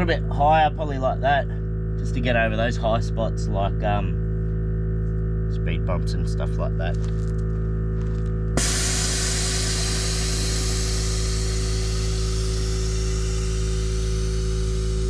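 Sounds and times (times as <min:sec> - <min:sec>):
steady low hum: 0:00.0 - 0:15.0
loud hiss of venting air: 0:08.6 - 0:15.0.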